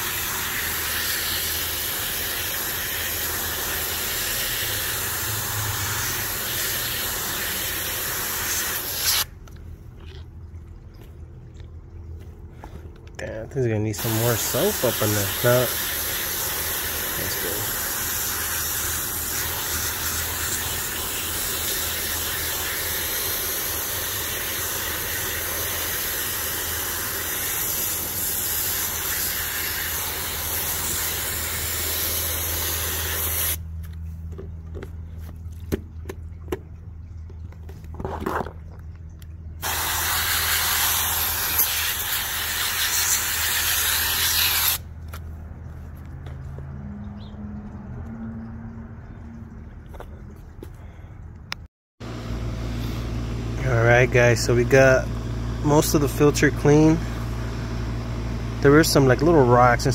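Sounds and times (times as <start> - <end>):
hose nozzle spraying water: 0.0 - 9.6, 13.9 - 33.7, 39.6 - 45.2.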